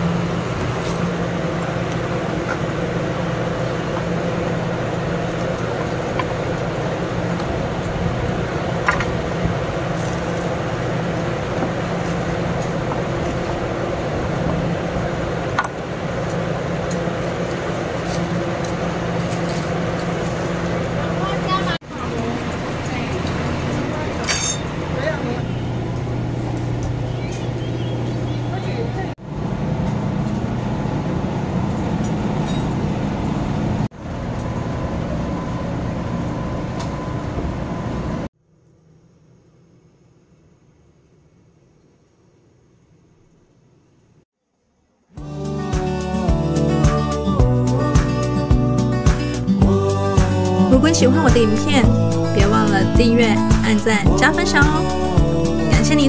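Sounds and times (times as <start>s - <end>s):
rushing street noise: 0.0s - 38.3s
low mechanical hum: 0.0s - 44.2s.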